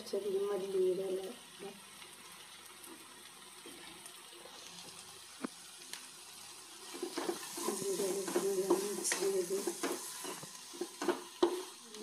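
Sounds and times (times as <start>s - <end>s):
food sizzling in a pan: 0.0s - 12.0s
spatula scraping a pan: 6.8s - 11.8s.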